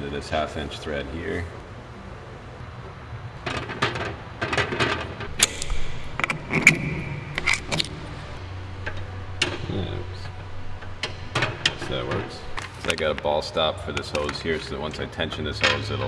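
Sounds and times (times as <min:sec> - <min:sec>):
metal hose fittings clinking: 0:08.8 - 0:13.2.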